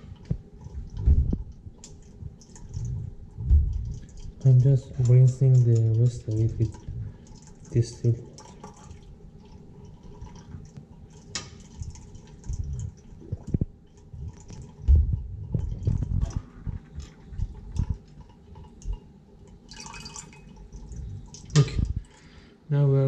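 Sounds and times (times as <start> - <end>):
liquid dripping into glass beaker: 0.0 - 22.2
soft low handling bumps: 0.3 - 1.6.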